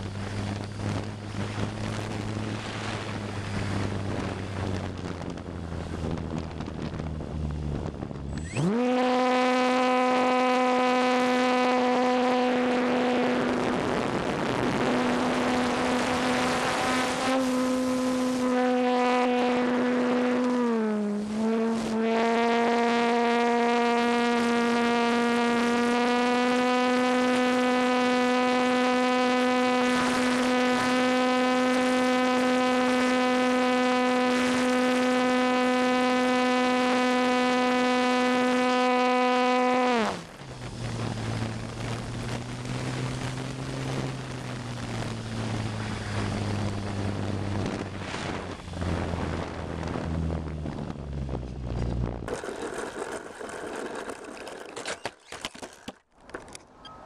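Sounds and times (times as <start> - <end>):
wind rush over airframe: 0.0 - 8.9, 12.8 - 18.5, 40.0 - 52.9
electric motor and propeller whine: 0.0 - 57.0.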